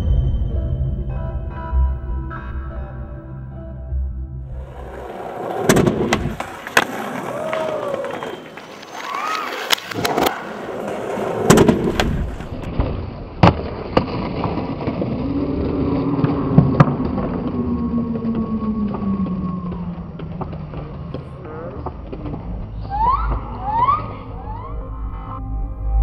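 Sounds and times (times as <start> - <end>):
skateboard wheels rolling on concrete: 4.4 - 25.4
skateboard clacking on landings: 4.6 - 14.5.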